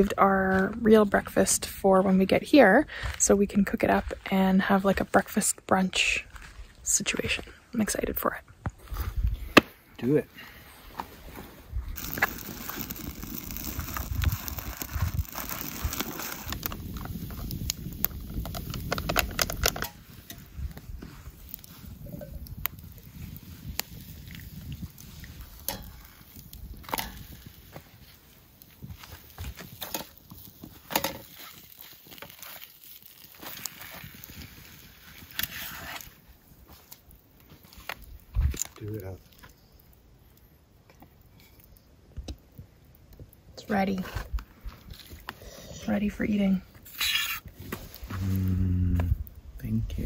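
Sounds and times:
campfire crackling: 0:00.0 - 0:50.0
rush of flame: 0:10.4 - 0:39.4
fire snaps and pops: 0:10.9 - 0:50.0.

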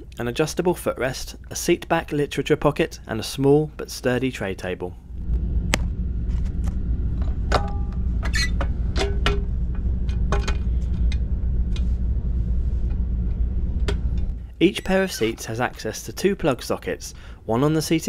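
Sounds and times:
train cabin low rumble: 0:04.9 - 0:17.5.

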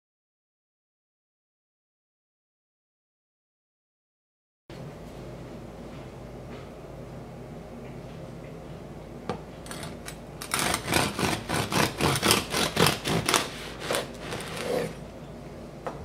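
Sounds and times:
bread knife sawing crusty roll: 0:09.7 - 0:15.0.

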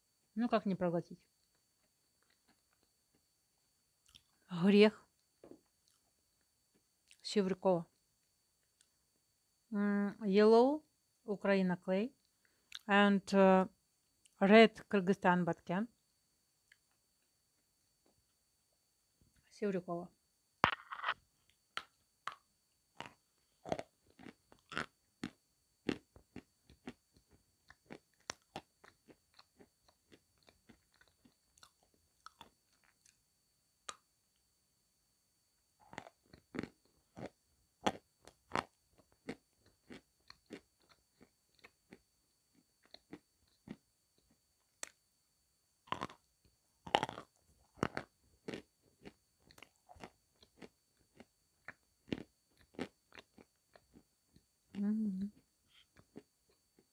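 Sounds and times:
chalk crunching as chewed: 0:23.0 - 0:33.2, 0:35.8 - 0:45.0, 0:45.9 - 0:54.1.

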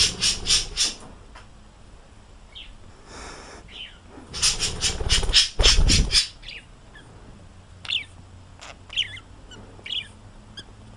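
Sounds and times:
parrot squawking: 0:00.0 - 0:01.0, 0:03.7 - 0:07.1, 0:07.8 - 0:10.8
parrot chirps: 0:03.7 - 0:07.1, 0:07.8 - 0:10.8.

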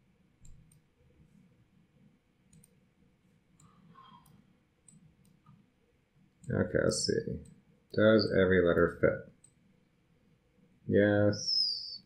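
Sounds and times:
faint computer mouse clicks: 0:00.4 - 0:00.9, 0:02.5 - 0:02.8, 0:03.6 - 0:05.6.

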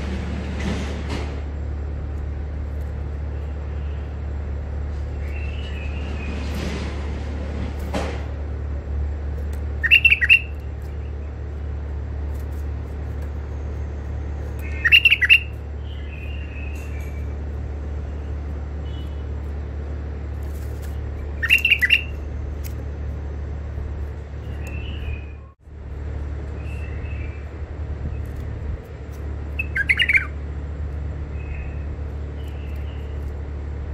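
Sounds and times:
steady low hum: 0:00.0 - 0:33.9
bird calling: 0:09.5 - 0:11.8, 0:13.4 - 0:19.6, 0:20.8 - 0:22.8, 0:24.3 - 0:25.6, 0:29.4 - 0:30.4.

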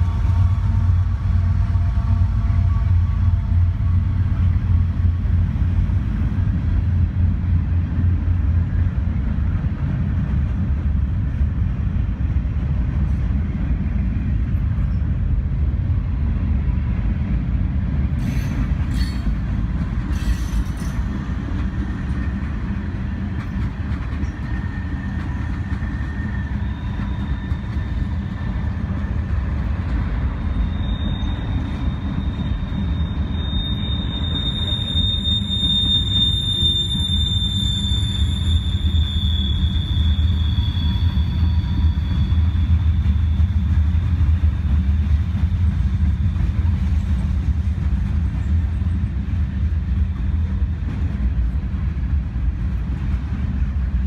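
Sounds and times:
train wheels rumbling on rail: 0:00.0 - 0:54.0
high wheel squeal: 0:24.2 - 0:29.2, 0:30.2 - 0:43.9.

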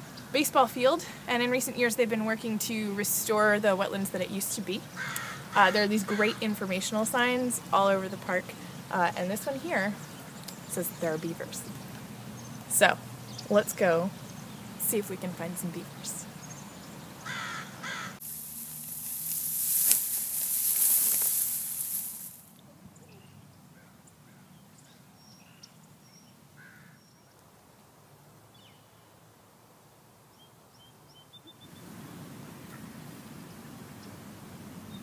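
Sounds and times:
loud rushing hiss: 0:18.2 - 0:22.5.

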